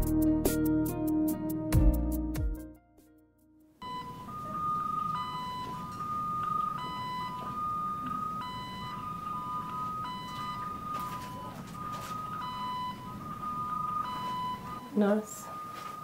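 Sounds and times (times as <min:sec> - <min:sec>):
two-tone electronic alarm beeping: 0:03.8 - 0:16.0.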